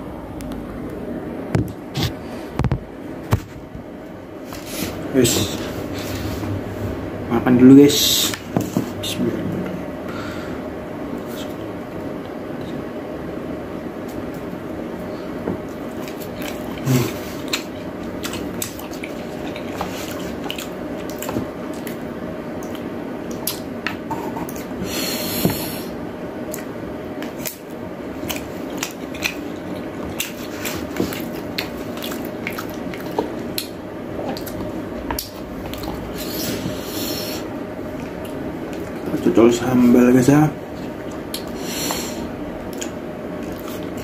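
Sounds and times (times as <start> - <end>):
low room hum: 0.0 - 44.0
chewing and mouth noises: 15.6 - 24.7, 26.4 - 39.3, 40.8 - 42.0, 42.7 - 44.0.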